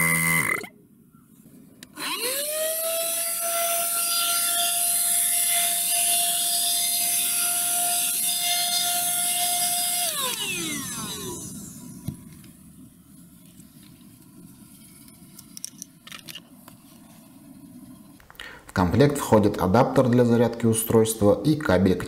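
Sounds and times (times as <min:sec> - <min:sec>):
vacuum cleaner motor whine: 0:02.0 - 0:12.4.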